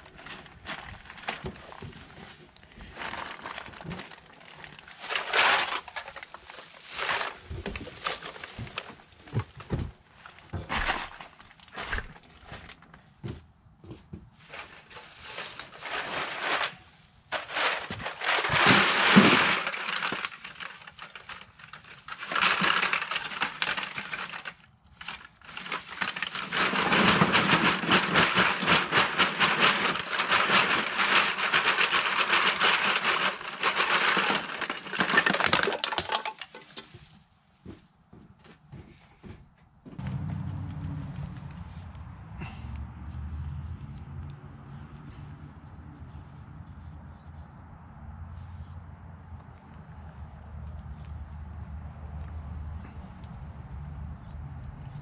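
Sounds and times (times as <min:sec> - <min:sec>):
cans rattling in a bag: 0:00.0 - 0:12.9, 0:14.4 - 0:36.9
plastic bag rustling: 0:00.0 - 0:13.0, 0:14.4 - 0:37.1
aluminum cans clinking: 0:26.4 - 0:36.8.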